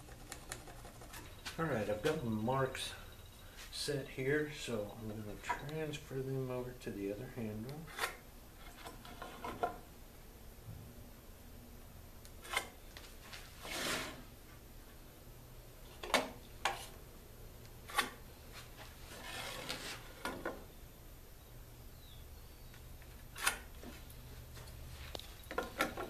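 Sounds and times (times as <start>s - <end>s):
short scrape: 13.6s - 14.2s.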